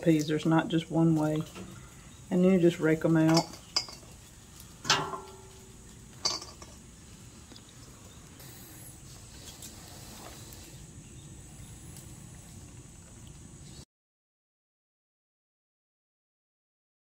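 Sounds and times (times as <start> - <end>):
faint outdoor background: 0.0 - 13.9
metallic clinks on steel bowl: 3.3 - 4.1, 6.2 - 6.8.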